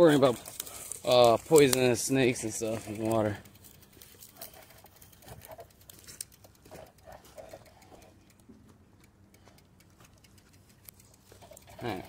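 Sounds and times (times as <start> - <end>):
footsteps crunching through dry grass: 0.0 - 7.5.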